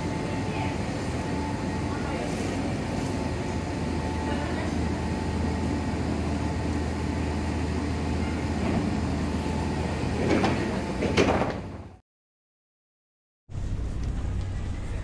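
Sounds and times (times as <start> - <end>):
train equipment hum: 0.0 - 12.0, 13.5 - 15.0
train doors sliding open: 4.8 - 12.0.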